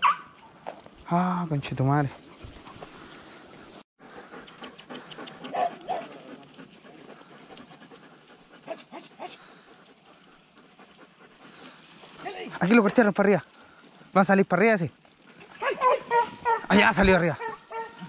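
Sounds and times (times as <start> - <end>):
dog panting: 2.1 - 14.1.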